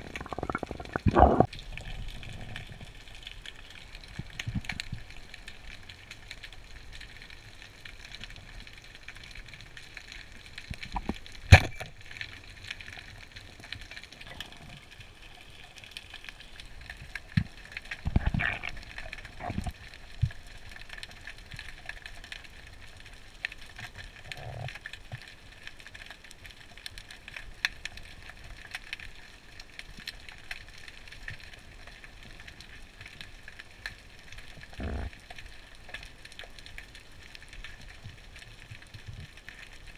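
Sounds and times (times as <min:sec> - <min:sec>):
faint crackling clicks: 0:00.0 - 0:39.9.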